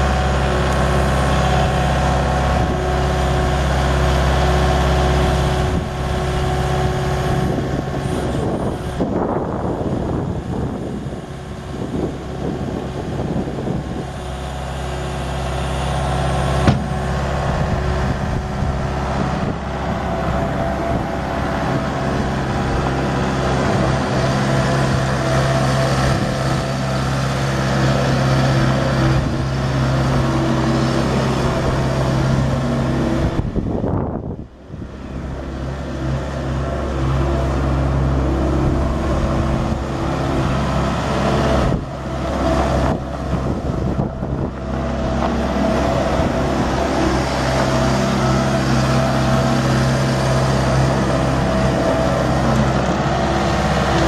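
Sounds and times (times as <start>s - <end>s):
diesel engine running: 0.0s - 54.0s
sharp knock: 16.6s - 17.0s.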